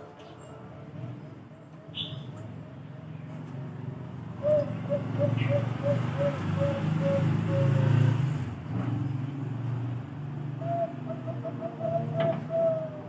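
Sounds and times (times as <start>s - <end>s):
dove cooing: 4.3s - 8.3s, 10.6s - 13.0s.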